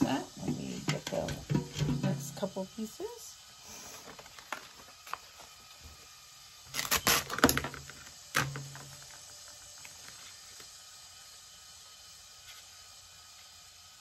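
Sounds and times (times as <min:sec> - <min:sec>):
plastic and paper sheets crinkling: 0:03.9 - 0:05.6.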